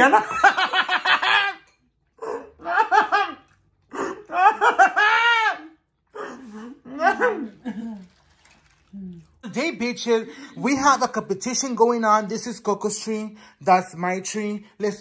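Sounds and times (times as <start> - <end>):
hearty human laughter: 0.0 - 8.1.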